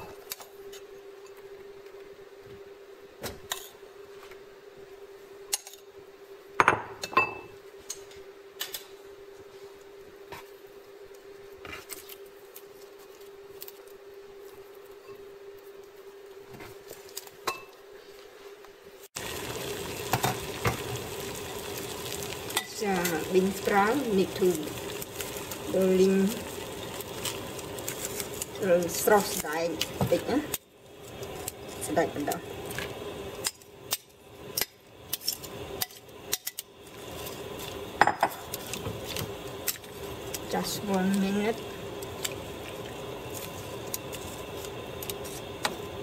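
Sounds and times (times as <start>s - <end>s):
faint steady hum: 0.0s - 46.0s
water boiling in a pot: 9.5s - 46.0s.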